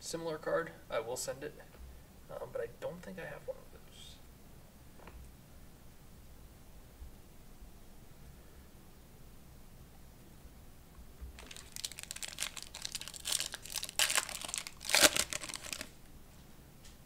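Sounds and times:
foil wrapper crinkling and tearing: 11.4s - 16.0s.

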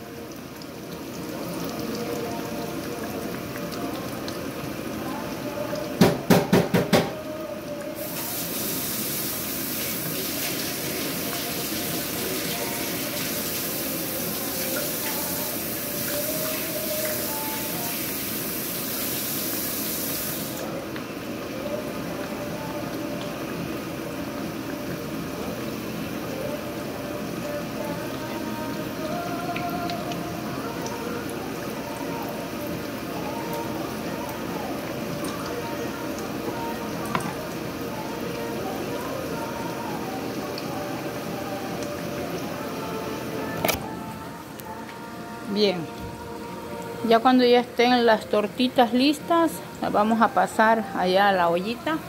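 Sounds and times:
food frying in oil: 0.0s - 43.6s
loud steady hiss: 7.9s - 20.7s.

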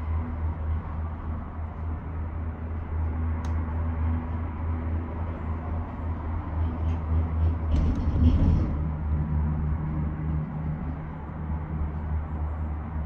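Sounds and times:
gondola cabin hum and rumble: 0.0s - 13.0s
gondola cabin rattle: 6.5s - 12.1s.

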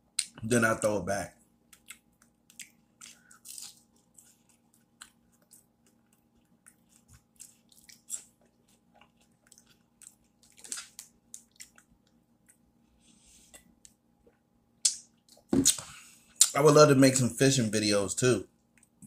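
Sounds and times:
person chewing food: 1.6s - 16.6s.

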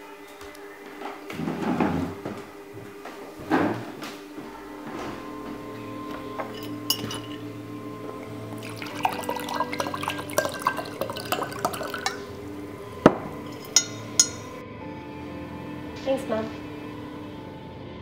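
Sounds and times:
soft background music: 0.0s - 18.0s
glass clinks: 6.3s - 7.6s, 8.5s - 12.4s, 13.0s - 14.6s
water poured into a glass: 6.6s - 7.5s, 8.2s - 14.6s.

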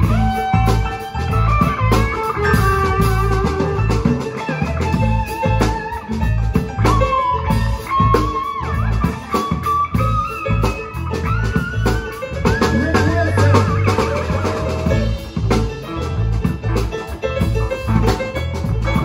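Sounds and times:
drum kit beat: 0.0s - 19.0s
electric guitar and bass: 0.0s - 19.0s
sliding bending guitar lead: 0.0s - 19.0s.

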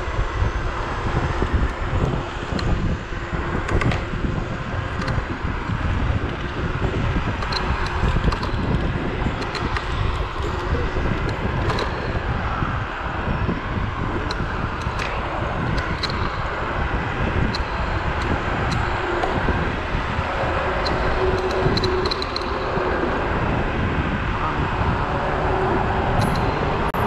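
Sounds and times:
faint steady whine: 0.0s - 27.0s
scooter road rumble: 0.0s - 27.0s
wind on microphone: 0.0s - 27.0s
scooter clicks and rattles: 1.2s - 12.9s, 14.0s - 23.5s.

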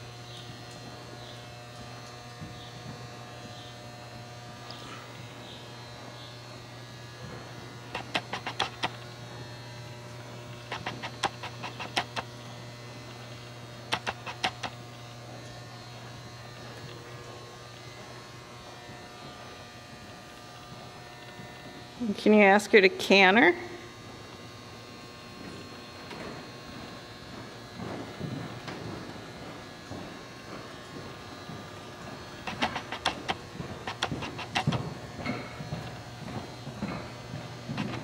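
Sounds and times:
low electrical hum: 0.0s - 38.0s
rapid sharp clicks: 7.9s - 9.0s, 10.6s - 12.3s, 13.9s - 14.8s, 32.4s - 34.8s.

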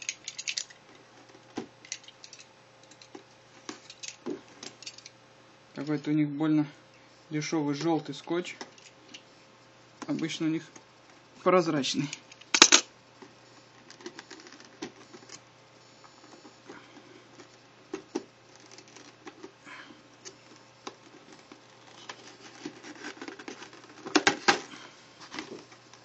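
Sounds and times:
cardboard rustle: 20.3s - 24.6s.

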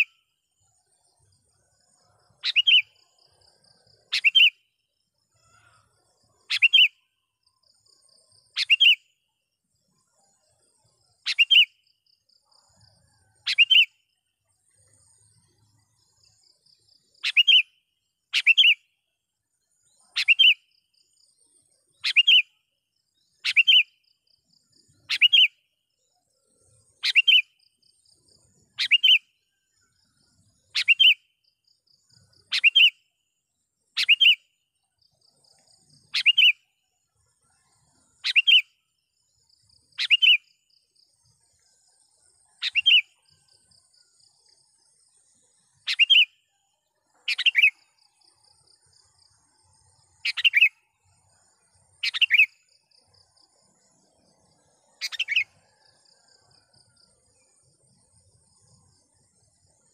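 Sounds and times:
bulbul calling: 2.4s - 3.0s, 4.1s - 4.6s, 6.4s - 7.0s, 8.6s - 9.0s, 11.2s - 11.7s, 13.4s - 13.9s, 17.2s - 17.7s, 18.4s - 18.8s, 20.1s - 20.6s, 22.0s - 22.5s, 23.4s - 24.0s, 25.1s - 25.5s, 27.0s - 27.5s, 28.8s - 29.2s, 30.7s - 31.2s, 32.5s - 33.0s, 34.0s - 34.4s, 36.1s - 36.6s, 38.2s - 38.7s, 40.0s - 40.4s, 42.6s - 43.2s, 45.9s - 46.3s, 47.3s - 47.9s, 50.2s - 50.8s, 52.0s - 52.6s, 55.0s - 55.6s.

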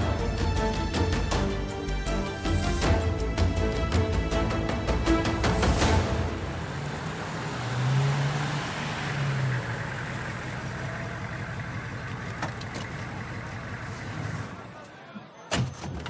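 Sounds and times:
van engine running: 4.1s - 14.8s
tyres on paving: 6.6s - 16.0s.

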